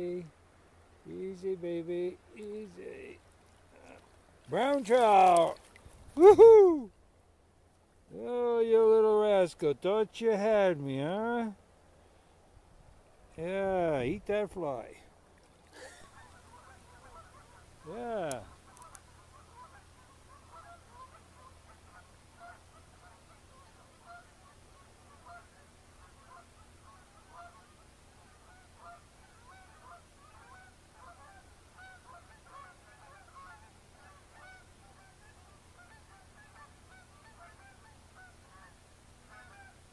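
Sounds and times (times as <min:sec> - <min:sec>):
geese honking: 0:16.0 - 0:39.9.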